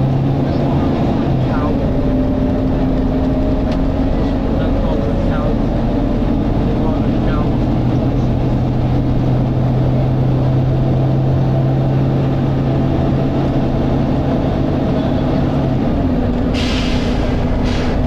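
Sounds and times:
bus diesel engine drone: 0.0s - 18.0s
short air hisses: 16.5s - 18.0s.

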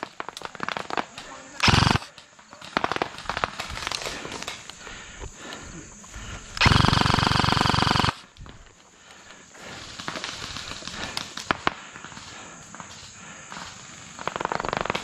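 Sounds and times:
sharp crack: 0.0s - 4.9s
airsoft rifle full-auto burst: 1.6s - 2.1s, 6.6s - 8.2s.

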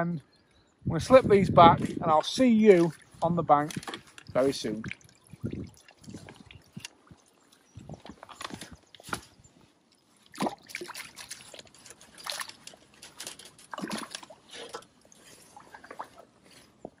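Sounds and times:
water sloshing and dripping: 2.2s - 17.0s
fish splashing into river: 10.3s - 12.6s.

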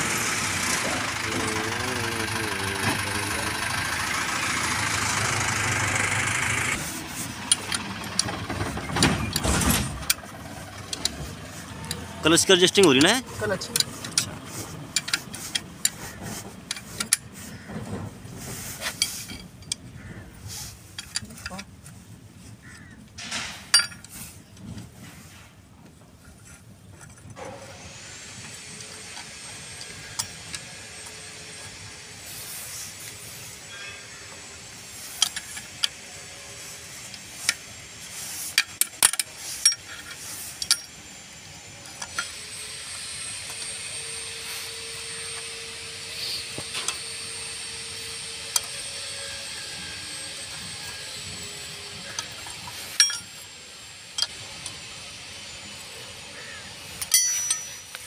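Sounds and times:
spanner clinking on metal nuts: 23.7s - 24.1s, 38.5s - 41.0s, 52.1s - 53.4s, 57.0s - 58.0s
steady hiss with high whine: 27.6s - 58.0s.

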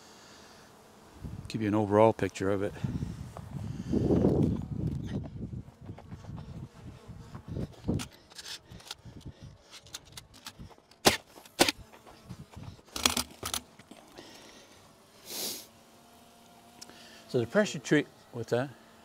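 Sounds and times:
short hiss: 15.2s - 15.8s.

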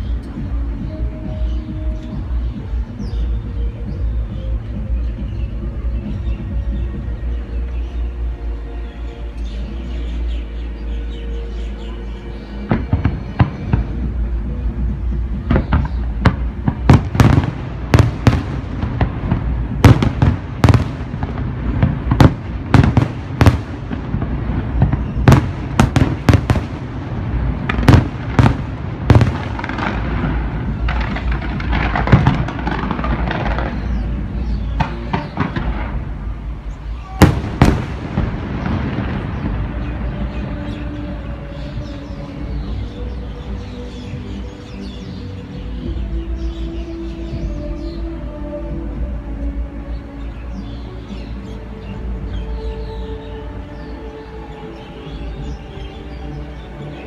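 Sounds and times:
firework crackling: 12.7s - 40.6s.

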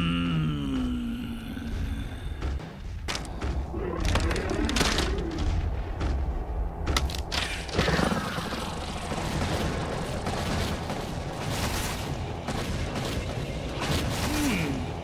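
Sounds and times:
explosions: 4.3s - 15.0s.

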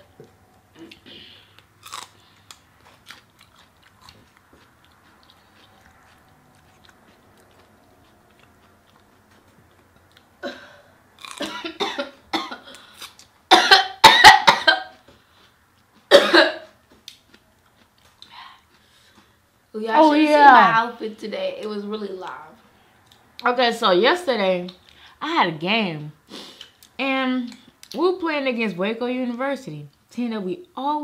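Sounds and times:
faint chewing: 0.2s - 10.4s, 11.2s - 11.5s, 15.0s - 19.4s, 22.5s - 23.5s
person coughing: 10.4s - 12.8s, 13.5s - 15.0s, 16.1s - 16.7s.

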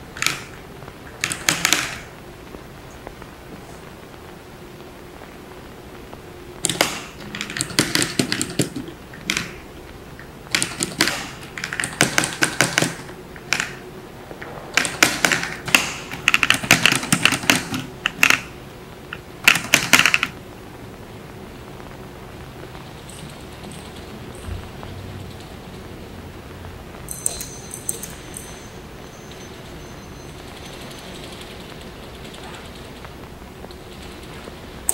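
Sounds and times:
faint steady hum: 0.0s - 34.9s
kinetic sound machine clicking: 6.6s - 13.8s.

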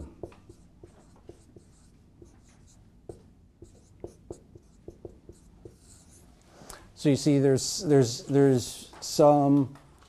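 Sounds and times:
marker squeaking on whiteboard: 0.0s - 6.2s.

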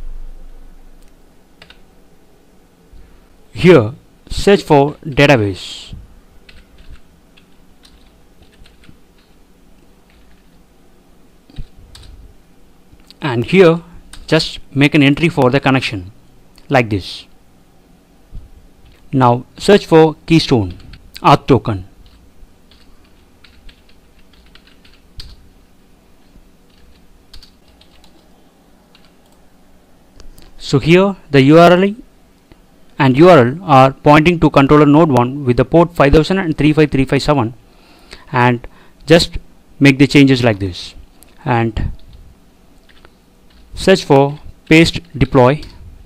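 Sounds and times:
computer keyboard typing: 1.6s - 1.8s, 6.5s - 9.4s, 10.0s - 10.5s, 11.5s - 12.2s, 14.1s - 14.3s, 22.0s - 25.4s, 26.7s - 28.3s, 28.9s - 29.4s, 42.8s - 43.7s.

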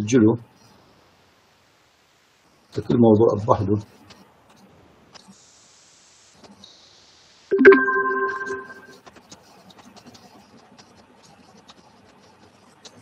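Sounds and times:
electronic notification chime: 7.5s - 8.9s.

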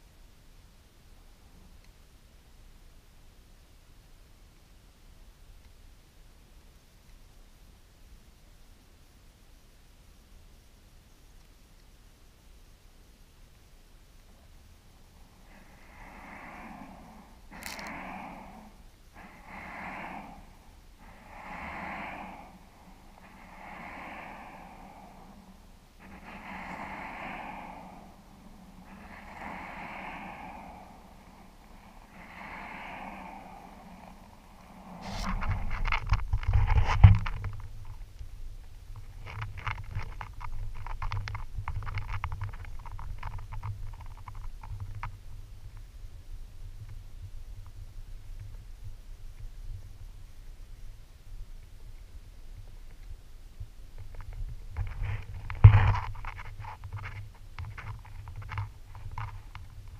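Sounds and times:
low rumble: 14.3s - 37.9s
person breathing heavily: 14.9s - 37.0s.

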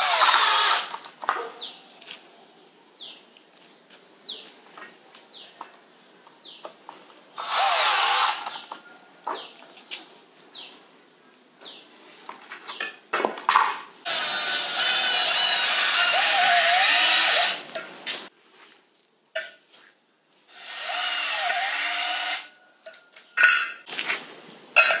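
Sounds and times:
cordless drill running: 0.0s - 0.9s, 7.4s - 8.5s, 14.1s - 17.6s, 20.5s - 22.5s.

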